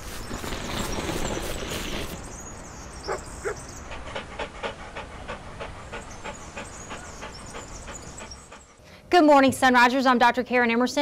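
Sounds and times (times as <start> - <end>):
dog panting: 3.1 - 8.8.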